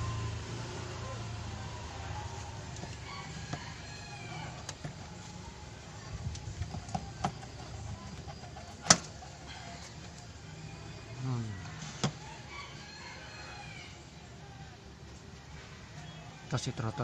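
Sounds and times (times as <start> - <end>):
rooster crowing: 0.0 - 6.2, 9.2 - 14.6.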